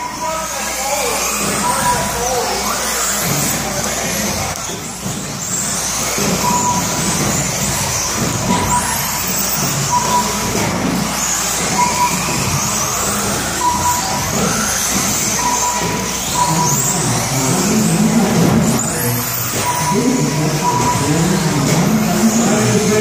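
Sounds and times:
toy car motors whining: 0.0s - 23.0s
short electronic beep: 6.2s - 7.0s, 8.4s - 10.6s, 11.6s - 18.2s, 18.8s - 23.0s.

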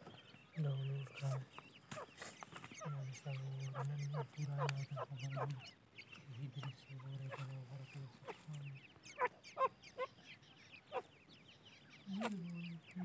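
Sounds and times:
chicks peeping: 0.0s - 13.0s.

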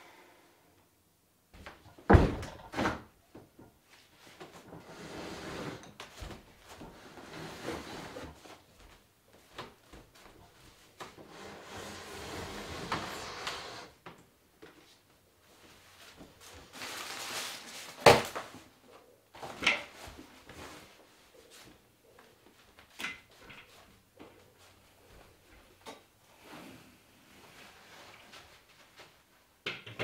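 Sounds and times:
wood scraping on wood: 4.7s - 5.8s, 6.7s - 8.5s, 11.1s - 14.0s.

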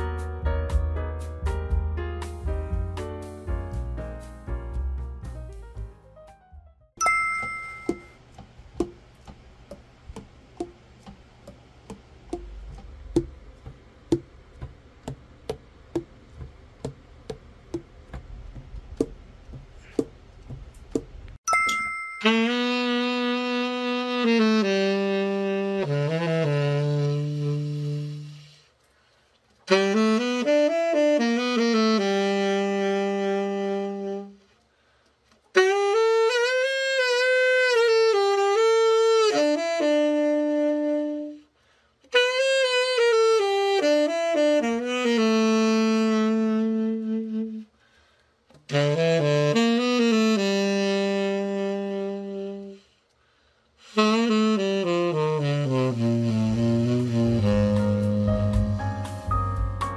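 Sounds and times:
tenor saxophone playing solo: 22.2s - 28.7s, 29.6s - 34.5s, 35.5s - 41.5s, 42.1s - 47.8s, 48.6s - 53.0s, 53.8s - 59.1s.

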